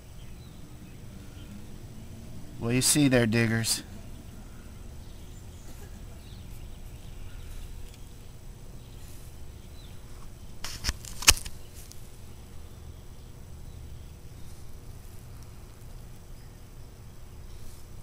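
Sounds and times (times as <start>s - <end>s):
faint outdoor background noise: 0.0s - 18.0s
sharp clicks: 10.6s - 12.0s.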